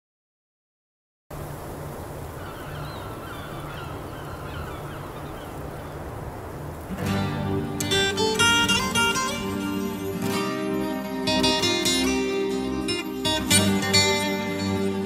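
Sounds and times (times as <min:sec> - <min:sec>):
short bird calls: 0:02.3 - 0:06.1
strummed acoustic guitar: 0:06.9 - 0:15.0.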